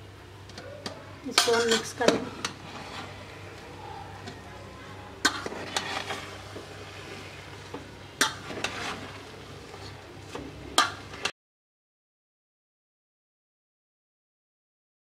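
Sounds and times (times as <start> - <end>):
spatula scraping rice in pot: 1.6 - 3.7, 5.2 - 11.3.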